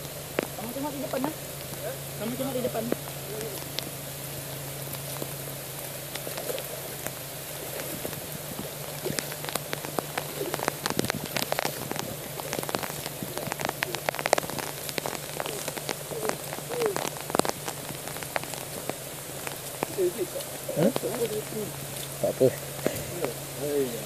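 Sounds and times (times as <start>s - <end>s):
footsteps squelching through mud: 0.0s - 24.0s
sharp wet clicks: 0.0s - 24.0s
steady hiss: 0.0s - 24.0s.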